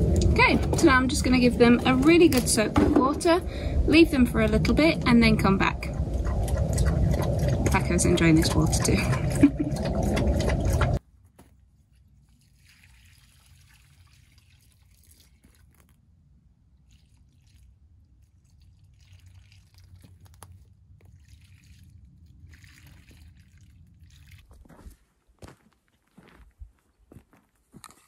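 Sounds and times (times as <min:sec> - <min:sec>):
low steady rumble: 0:00.0 - 0:11.0
water pouring and splashing: 0:00.0 - 0:11.0, 0:12.1 - 0:16.0, 0:16.7 - 0:25.0.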